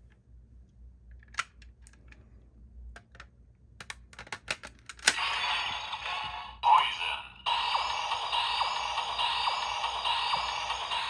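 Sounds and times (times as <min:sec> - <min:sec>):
electronic toy sound effect: 0:05.1 - 0:11.0.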